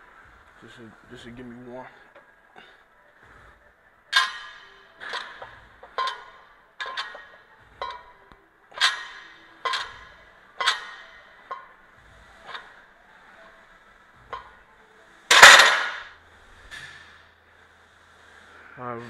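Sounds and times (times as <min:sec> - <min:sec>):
weight plates clanking: 0:04.1 - 0:12.8, 0:15.3 - 0:16.1.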